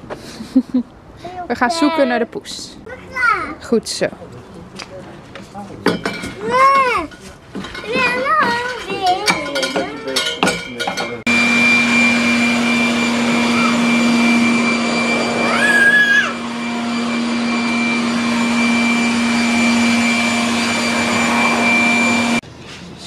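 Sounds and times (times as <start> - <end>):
child's voice: 1.2 - 2.3, 2.9 - 3.6, 6.4 - 7.2, 7.8 - 10.1
electric leaf blower running: 11.3 - 22.4.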